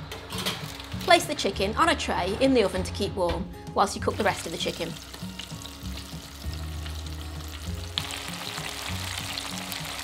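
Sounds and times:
chicken deep-frying in oil: 0:04.2 - 0:10.0.

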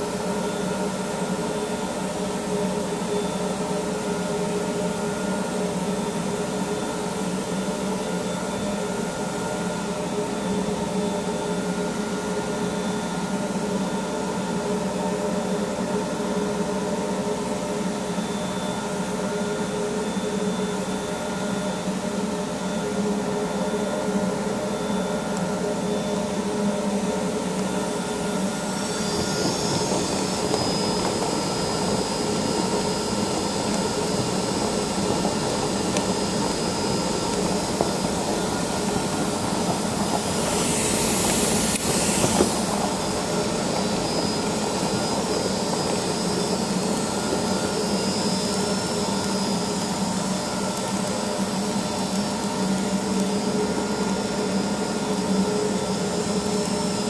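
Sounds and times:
concrete floor grinder droning: 0:22.8 - 0:57.0.

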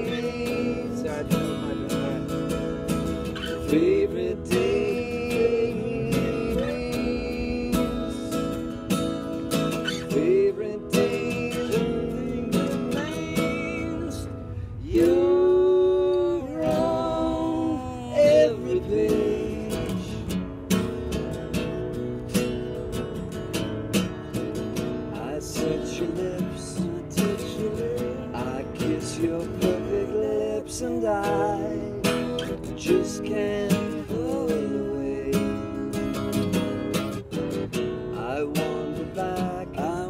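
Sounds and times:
man singing: 0:00.0 - 0:08.8, 0:09.8 - 0:20.4, 0:25.1 - 0:36.8, 0:38.1 - 0:40.0
acoustic guitar strumming: 0:00.0 - 0:40.0.

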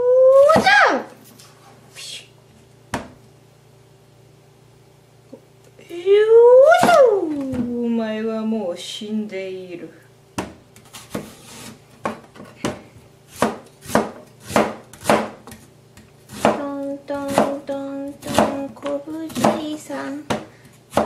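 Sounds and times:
knife chopping on plastic board: 0:12.0 - 0:17.6, 0:18.2 - 0:21.0.

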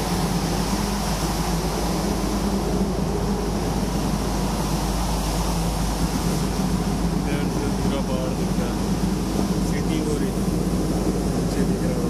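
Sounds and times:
ship machinery droning: 0:00.0 - 0:12.0.

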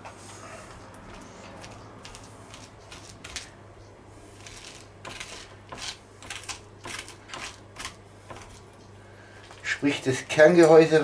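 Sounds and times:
scraping squash seeds: 0:00.2 - 0:03.6, 0:04.2 - 0:08.7.

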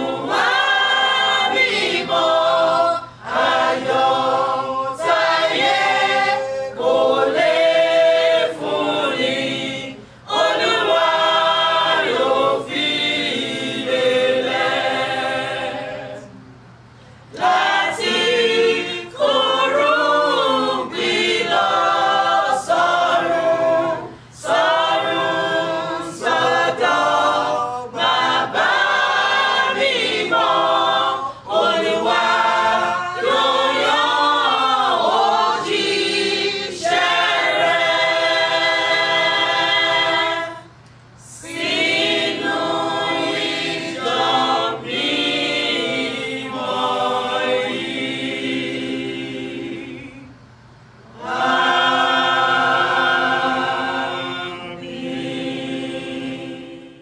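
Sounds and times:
mixed choir singing a cappella: 0:00.0 - 0:16.6, 0:17.3 - 0:57.0.

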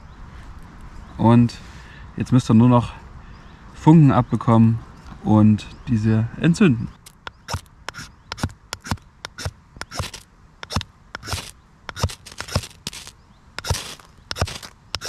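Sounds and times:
knife rasping on fire steel: 0:07.4 - 0:15.0.

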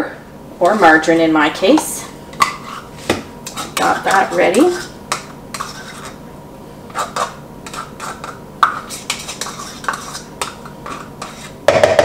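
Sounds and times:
spoon scraping measuring cup: 0:02.4 - 0:02.9, 0:03.5 - 0:06.2, 0:06.9 - 0:11.6.

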